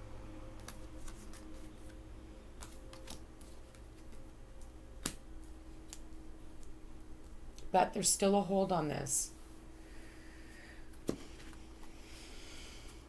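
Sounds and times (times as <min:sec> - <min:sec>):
faint steady hum: 0:00.0 - 0:13.0
cards clicking and snapping: 0:00.6 - 0:02.0, 0:02.6 - 0:06.8.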